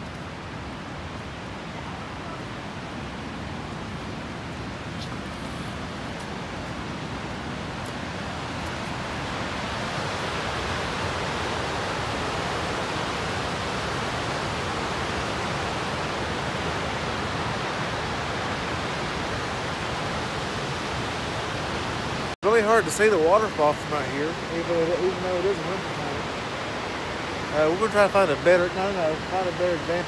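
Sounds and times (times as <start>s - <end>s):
distant waterfall rushing: 0.0s - 30.0s.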